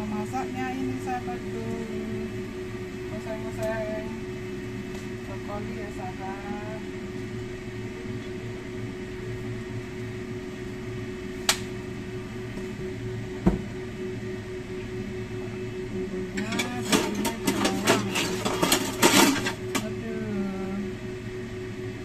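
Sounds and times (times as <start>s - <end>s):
kitchen hum: 15.3s - 21.0s.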